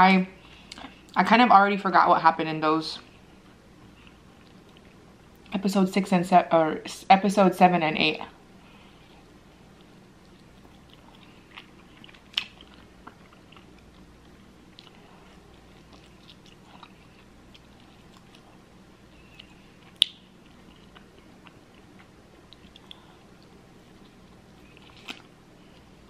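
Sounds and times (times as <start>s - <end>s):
chewing and biting food: 9.7s - 26.0s.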